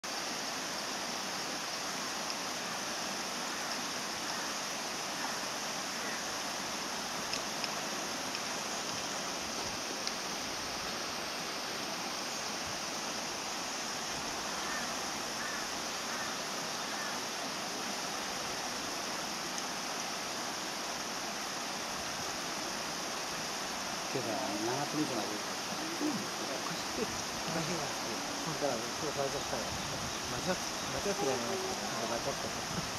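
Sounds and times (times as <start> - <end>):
steady background hiss: 0.0 - 32.9
faint chirps: 24.1 - 32.9.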